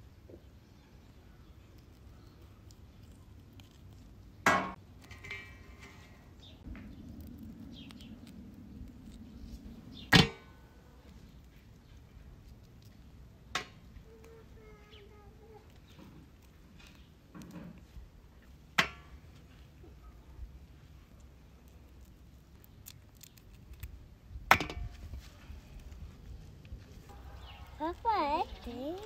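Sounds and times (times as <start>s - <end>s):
shrimp being peeled: 1.4s - 6.0s, 21.2s - 24.1s.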